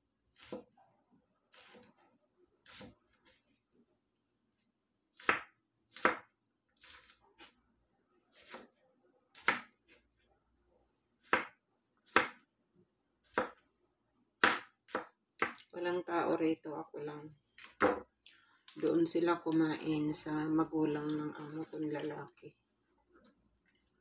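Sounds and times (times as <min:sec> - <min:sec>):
knife chopping on plastic board: 0:05.2 - 0:06.3, 0:09.4 - 0:09.8, 0:11.2 - 0:12.4, 0:13.3 - 0:13.6, 0:14.4 - 0:15.6, 0:17.8 - 0:18.1.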